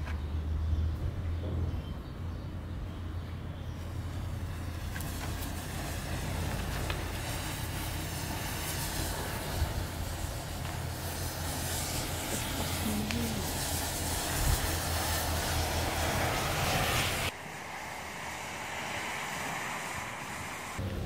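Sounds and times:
sharp crackles: 3.8 - 17.4
matches flaring hiss: 3.8 - 21.0.

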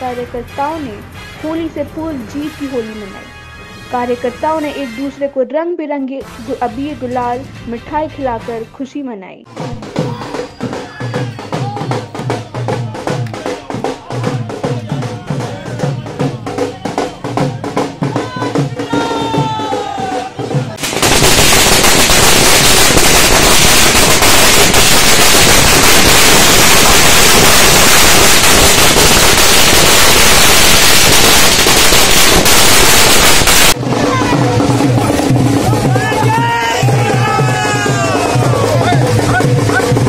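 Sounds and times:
crowd voices: 9.5 - 21.0, 33.7 - 40.0
drums and music: 9.5 - 26.6, 30.7 - 40.0
firecrackers crackling: 20.8 - 36.4.

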